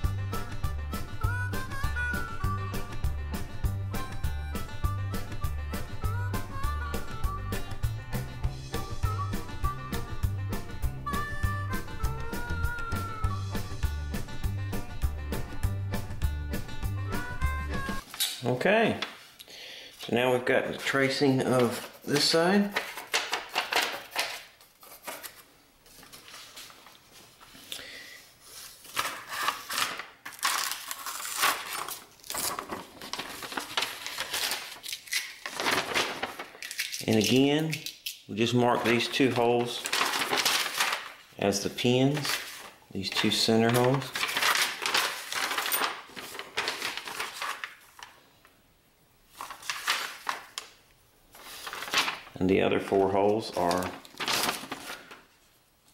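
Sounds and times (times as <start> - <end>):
paper rustling and crinkling: 20.7 - 27.7, 28.4 - 37.5, 38.7 - 48.2, 49.3 - 55.5.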